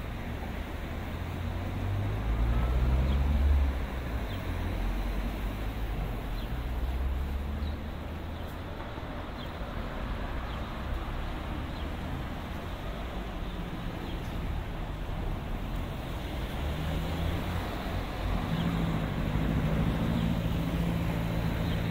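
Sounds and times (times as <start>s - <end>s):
vehicle passing with low rumble: 0.0s - 8.0s, 14.4s - 21.9s
background traffic: 0.0s - 21.9s.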